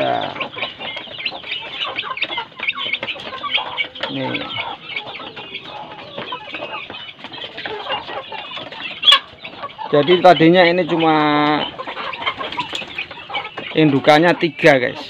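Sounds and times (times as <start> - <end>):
chickens clucking: 0.0 - 15.0
chicks peeping: 0.0 - 15.0.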